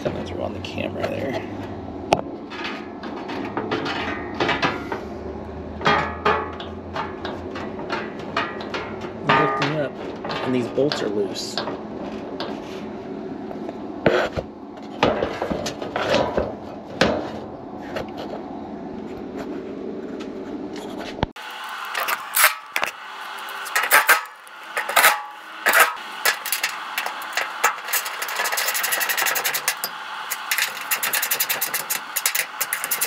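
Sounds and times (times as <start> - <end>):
fan motor humming: 0.0 - 33.0.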